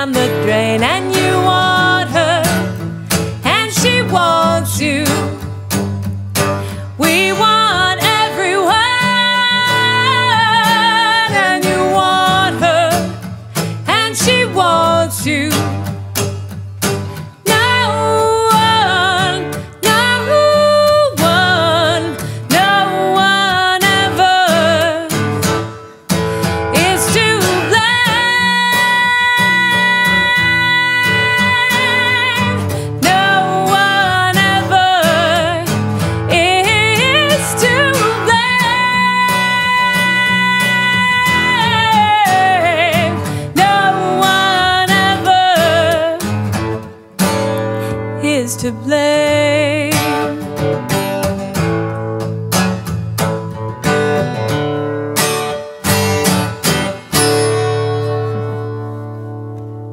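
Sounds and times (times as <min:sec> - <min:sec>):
woman singing with vibrato: 0:00.0 - 0:05.6, 0:06.6 - 0:16.1, 0:17.4 - 0:25.6, 0:26.4 - 0:46.8, 0:47.8 - 0:50.6
acoustic guitar: 0:00.0 - 0:59.9.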